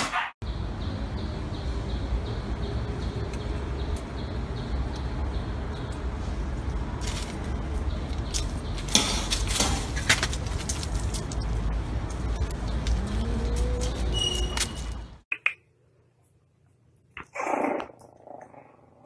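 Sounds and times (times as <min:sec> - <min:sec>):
steady low rumble: 0:00.4 - 0:14.1.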